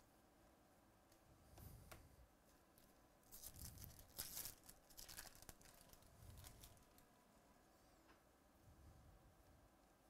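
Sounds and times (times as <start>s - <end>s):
wrapper crinkling and tearing: 3.3s - 7.0s.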